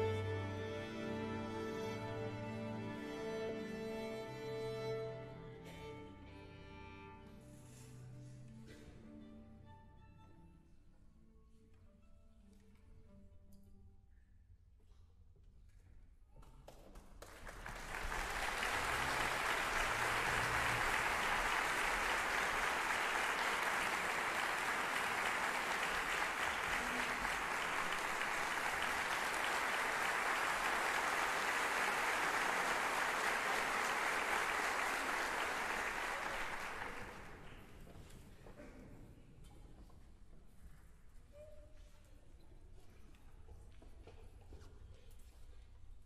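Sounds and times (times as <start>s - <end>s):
audience applauding: 16.7s - 37.8s.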